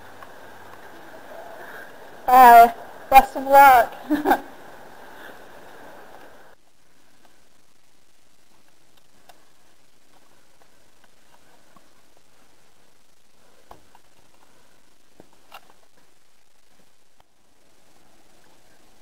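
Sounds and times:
heavy rain hiss: 0:00.0 - 0:19.0.

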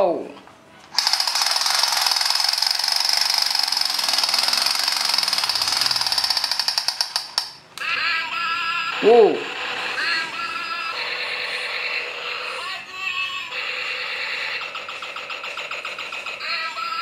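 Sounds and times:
toy rifle rapid-fire rattle: 0:00.9 - 0:07.6, 0:13.6 - 0:17.0.

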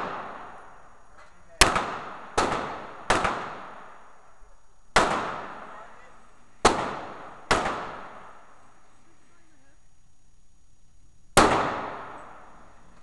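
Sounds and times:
pistol shots with echo: 0:00.0 - 0:00.8, 0:01.6 - 0:08.6, 0:11.4 - 0:12.8.

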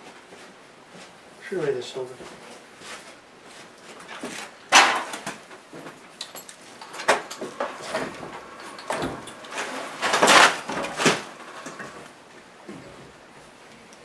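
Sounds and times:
metal clunk and scrape: 0:06.5 - 0:13.1.

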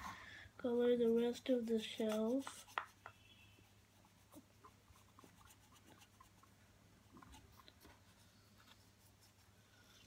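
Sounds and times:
pen scratching on cardboard: 0:01.0 - 0:06.5.

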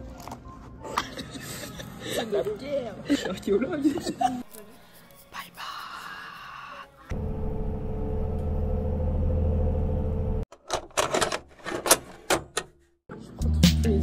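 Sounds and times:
music: 0:00.0 - 0:07.2, 0:13.1 - 0:14.0
vehicle cabin drone: 0:07.1 - 0:10.5.

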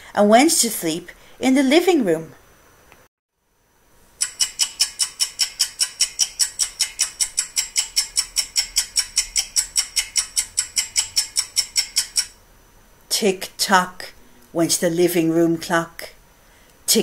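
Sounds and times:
clock ticking: 0:04.2 - 0:12.4.

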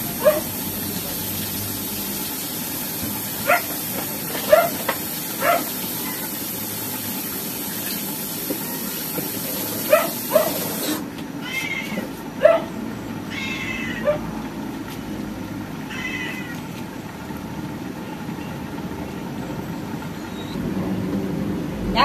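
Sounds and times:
cat meowing: 0:11.4 - 0:12.1, 0:13.3 - 0:14.2, 0:15.9 - 0:16.6.

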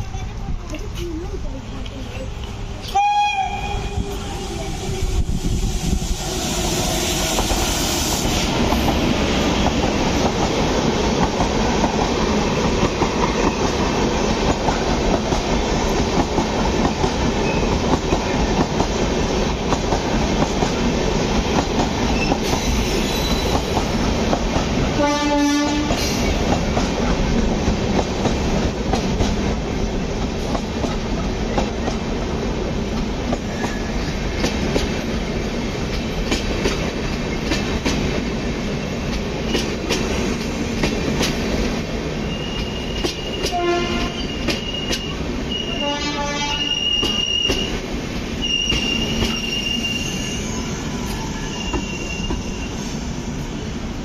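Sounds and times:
train wheels rumbling over rails: 0:00.0 - 0:54.0
train horn blast: 0:03.0 - 0:05.1, 0:25.0 - 0:26.0, 0:43.4 - 0:44.3, 0:45.6 - 0:47.2.

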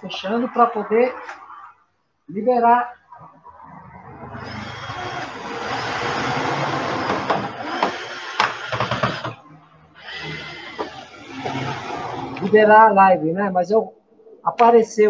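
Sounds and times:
dense mechanical noise: 0:03.6 - 0:12.6.

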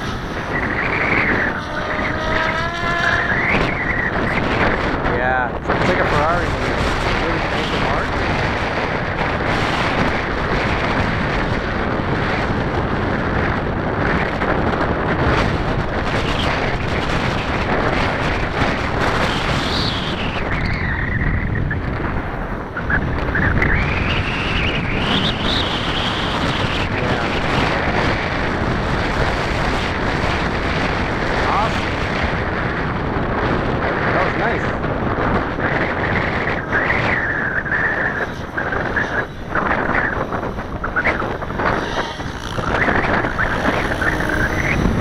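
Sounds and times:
rc helicopter whine: 0:00.0 - 0:32.7, 0:34.1 - 0:45.0
wind buffeting microphone: 0:00.0 - 0:45.0.

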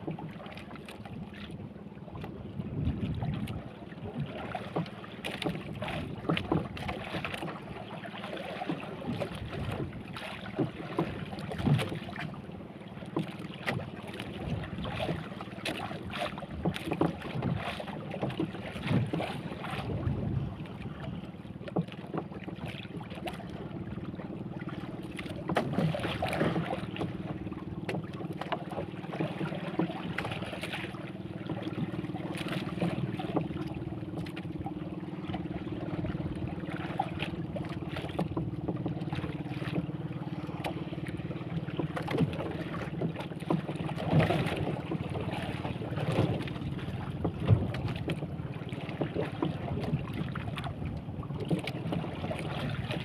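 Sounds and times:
water slapping against boat hull: 0:00.0 - 0:53.0
wind on microphone: 0:02.4 - 0:03.7, 0:19.1 - 0:21.3.

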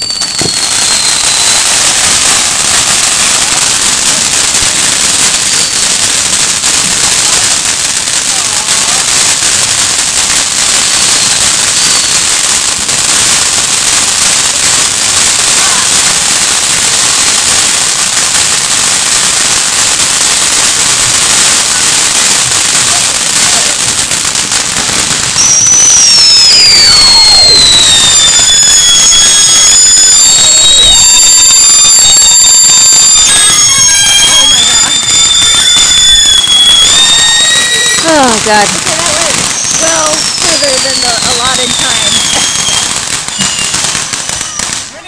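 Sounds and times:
fountain firework hissing crackle: 0:00.0 - 0:45.0
shrill firework whistles: 0:00.0 - 0:45.0.

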